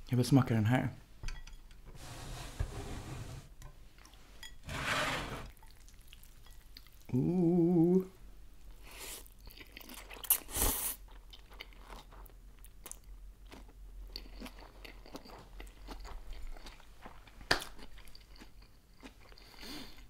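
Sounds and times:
wet chewing and crunching: 5.5s - 7.1s, 9.2s - 20.0s.

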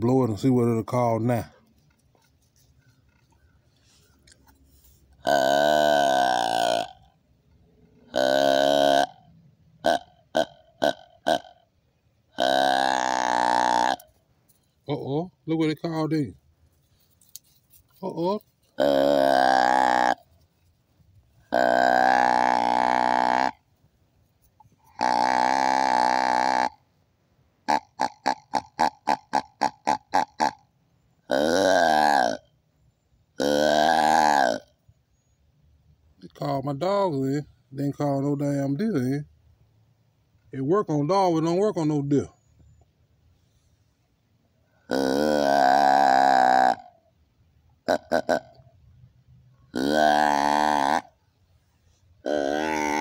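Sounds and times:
deer grunt call: 5.2s - 7.2s, 7.8s - 11.7s, 12.3s - 14.1s, 18.0s - 20.3s, 21.4s - 23.7s, 24.8s - 26.9s, 27.6s - 32.6s, 33.4s - 34.8s, 44.7s - 47.1s, 47.8s - 48.8s, 49.7s - 53.0s.

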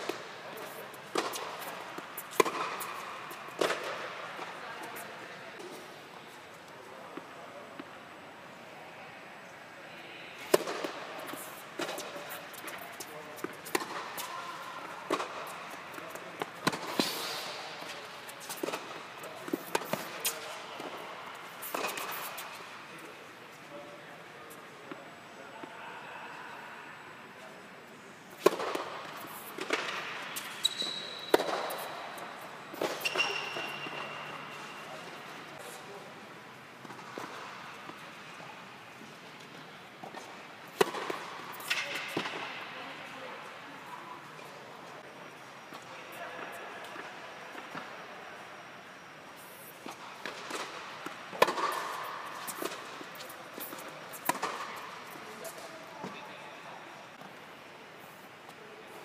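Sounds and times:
tennis racket striking ball: 0.0s - 4.5s
tennis balls struck by rackets: 0.0s - 4.6s, 10.5s - 22.6s, 28.3s - 35.3s, 39.4s - 42.6s, 49.8s - 55.7s.

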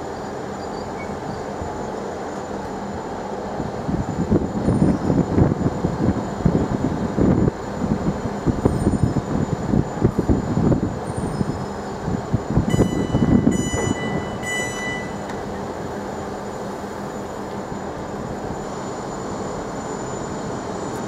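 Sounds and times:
electric train rumbling: 0.0s - 21.0s
high-pitched electronic beeps: 12.7s - 15.3s.

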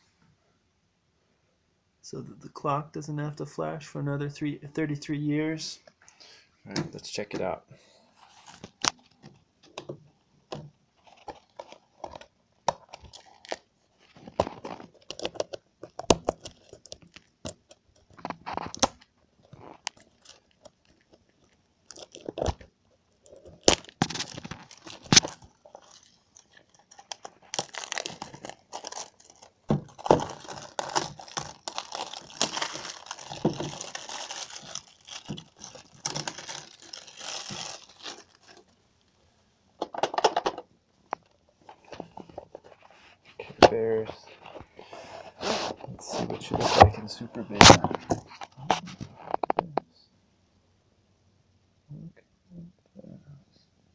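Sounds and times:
plastic shrinkwrap crinkling and tearing: 11.0s - 38.8s.

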